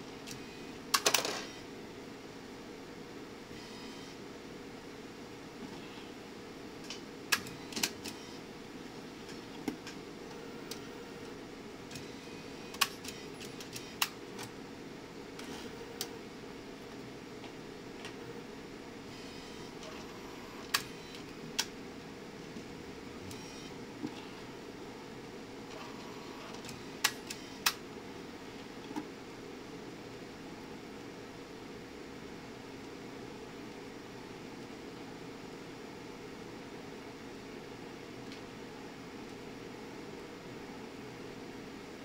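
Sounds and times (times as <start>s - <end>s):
mechanical clicks and clacks: 0.2s - 1.5s, 11.9s - 14.6s, 25.7s - 27.8s.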